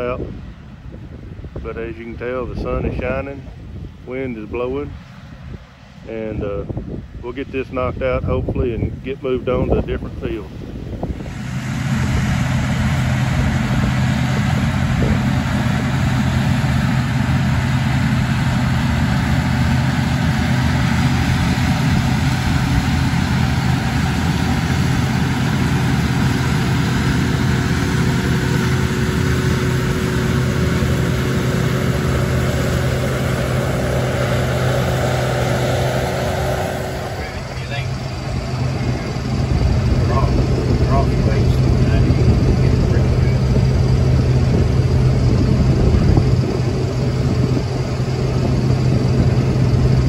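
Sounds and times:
combine harvester drone: 0:00.0 - 0:50.0
faint steady whine: 0:00.0 - 0:50.0.

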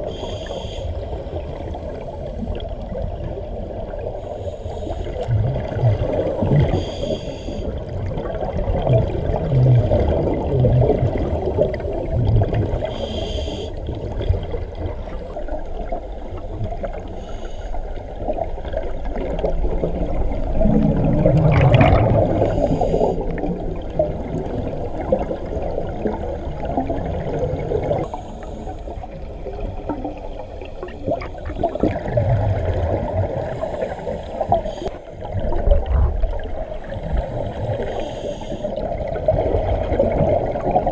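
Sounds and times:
low underwater rumble: 0:07.7 - 0:13.0, 0:13.8 - 0:40.9.

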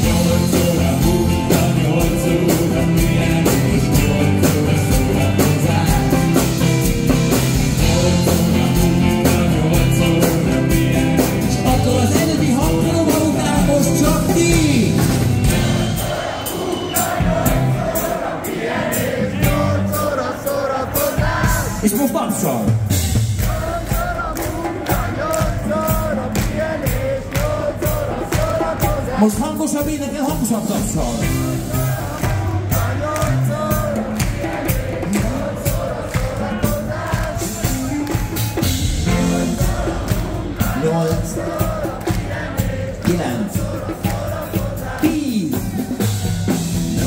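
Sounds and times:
crowd singing along: 0:00.0 - 0:47.0
rock band playing loudly: 0:00.0 - 0:47.0
steady clapping: 0:23.7 - 0:29.0, 0:32.1 - 0:38.7, 0:39.6 - 0:45.1.

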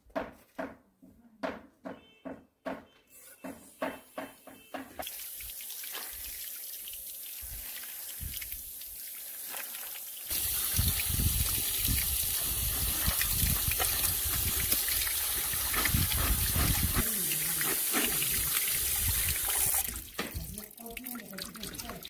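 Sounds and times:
tap water pouring: 0:05.0 - 0:22.0
hand rubbing beans in colander: 0:09.0 - 0:18.7.

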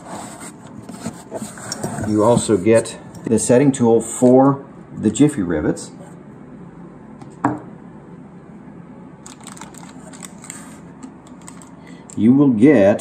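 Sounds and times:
small clicks and rustles: 0:09.2 - 0:12.2.

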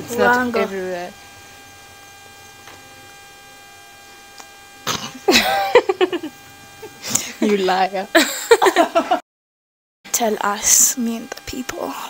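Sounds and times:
low electrical hum: 0:00.0 - 0:09.2, 0:10.1 - 0:12.0
woman laughing: 0:05.2 - 0:09.2.

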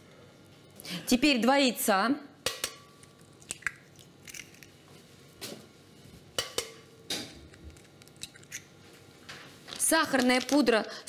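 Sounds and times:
eggs cracking against a bowl: 0:02.4 - 0:04.8, 0:07.6 - 0:08.7.

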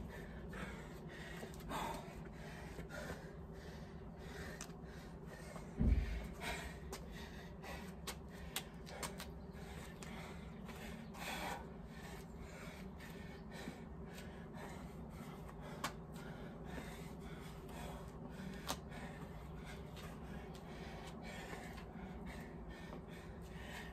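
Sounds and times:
man breathing hard: 0:00.0 - 0:23.9.

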